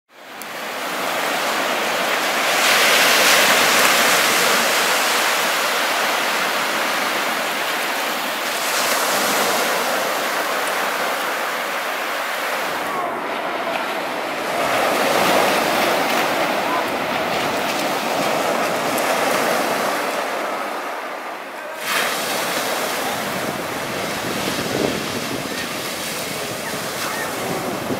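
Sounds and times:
surf waves washing on beach: 0.1s - 27.9s.

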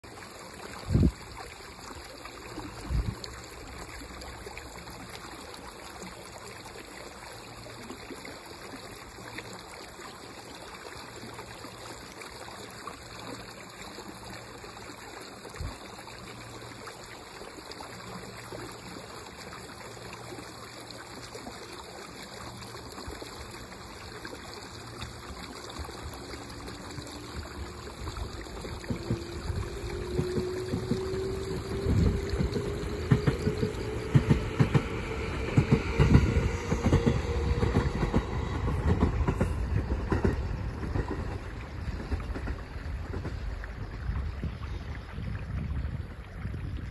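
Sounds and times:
wind noise: 0.8s - 1.2s, 2.8s - 3.2s, 27.0s - 46.9s
electric train motor whine: 28.8s - 40.7s.

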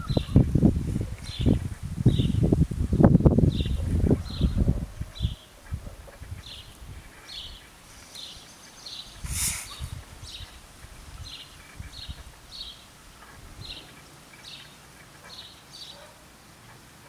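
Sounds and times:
small bird chirping: 0.0s - 0.5s, 1.2s - 2.5s, 3.5s - 16.1s
loud burst of noise: 9.2s - 10.0s.

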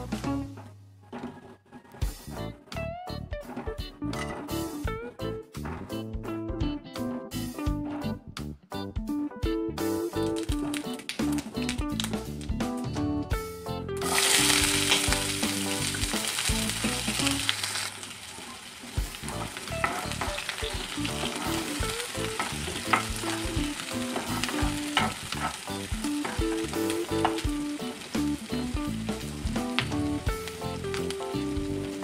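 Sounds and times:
onions sizzling in hot oil: 14.0s - 32.0s
spatula scraping and tapping pan: 18.9s - 32.0s.

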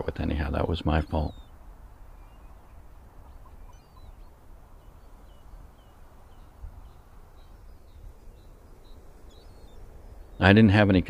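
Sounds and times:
high bird calls: 0.0s - 11.0s
wind and surf rumble: 0.0s - 11.0s.

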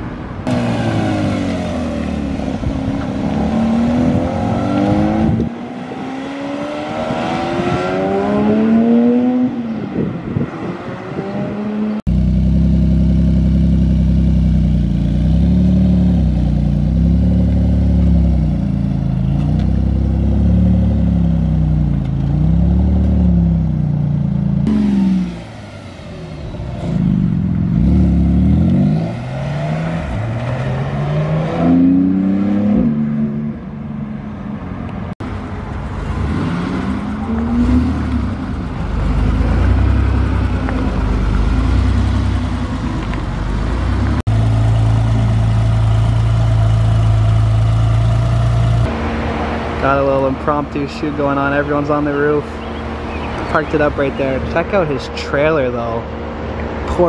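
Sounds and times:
car engine revving through gears: 0.4s - 9.7s, 26.4s - 33.6s, 36.0s - 43.0s
car engine at low revs: 12.1s - 30.4s, 35.7s - 50.0s.

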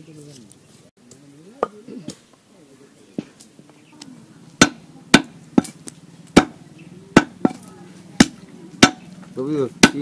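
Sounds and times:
cleaver chopping meat on wood: 4.6s - 6.6s, 7.2s - 7.6s, 8.2s - 9.0s, 9.8s - 10.0s.

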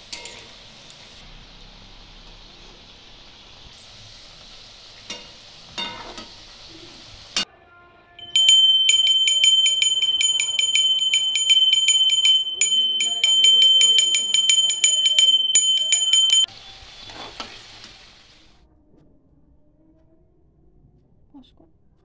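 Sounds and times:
oil sizzling in a wok: 0.0s - 7.5s, 15.5s - 18.6s
metal spatula clinking on pan: 0.1s - 0.5s, 5.1s - 6.3s, 8.2s - 16.5s
bell rung rapidly: 8.2s - 16.5s.

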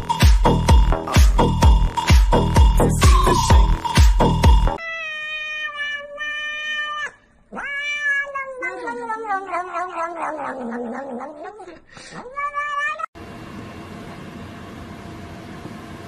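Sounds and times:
cat yowling: 4.8s - 13.2s.

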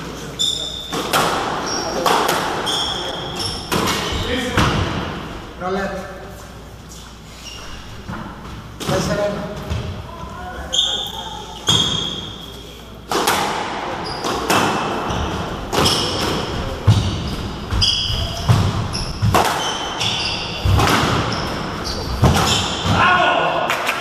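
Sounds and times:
shoes squeaking on wooden floor: 0.4s - 4.5s, 6.9s - 8.5s, 15.0s - 22.9s
squash ball hitting rackets and walls: 0.8s - 5.3s, 11.7s - 12.3s, 13.1s - 24.0s.

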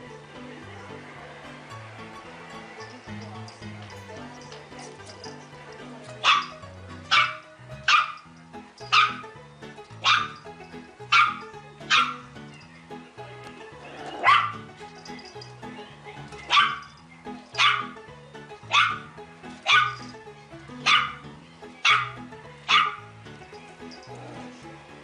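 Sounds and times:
background music: 0.0s - 25.0s
puppy barking: 6.2s - 9.3s, 10.0s - 10.5s, 11.1s - 12.3s, 13.8s - 15.2s, 16.1s - 18.0s, 18.7s - 20.2s, 20.8s - 23.1s.

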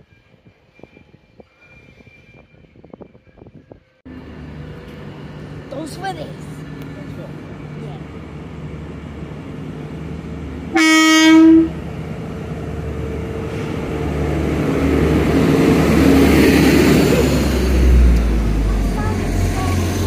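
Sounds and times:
diesel train passing: 0.0s - 20.0s
train horn: 10.7s - 11.8s.

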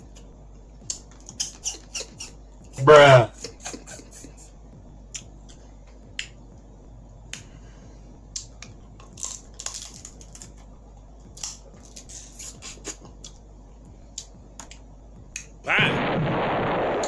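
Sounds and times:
crab shells cracking and chewing: 8.4s - 10.7s, 11.3s - 13.4s.

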